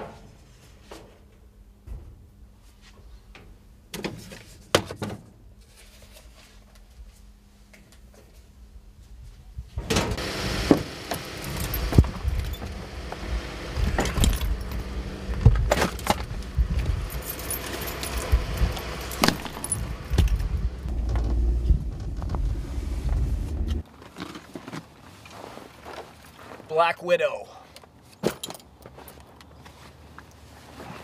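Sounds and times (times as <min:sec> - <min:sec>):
pickup truck engine rumble: 0:10.1 - 0:23.8.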